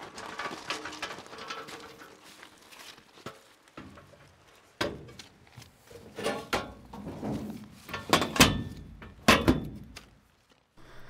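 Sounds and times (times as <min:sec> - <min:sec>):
metal cabinet clunking on hand truck: 0:06.0 - 0:09.8.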